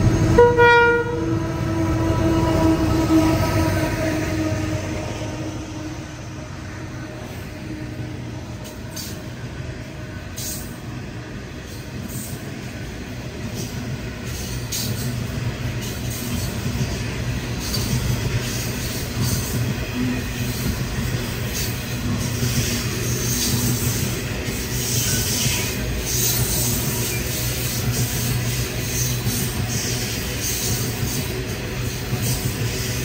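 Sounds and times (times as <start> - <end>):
freight train wheels rumbling: 0.0 - 33.0
locomotive horn: 0.3 - 4.8.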